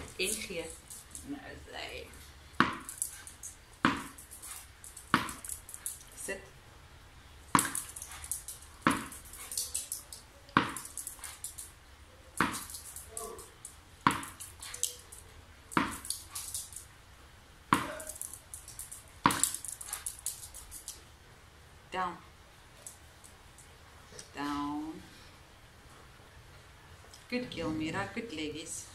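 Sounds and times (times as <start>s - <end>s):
tennis ball bouncing on hard floor: 2.6s - 3.1s, 3.8s - 4.3s, 4.9s - 5.7s, 7.5s - 8.0s, 8.8s - 9.2s, 10.5s - 11.2s, 12.4s - 13.2s, 14.0s - 14.6s, 15.7s - 16.2s, 17.7s - 18.3s, 19.2s - 19.6s.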